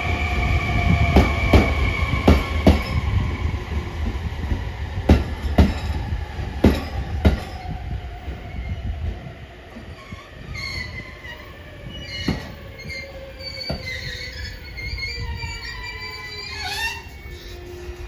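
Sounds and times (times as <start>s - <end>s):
low train running rumble: 0.0s - 18.0s
high thin squeal: 12.0s - 18.0s.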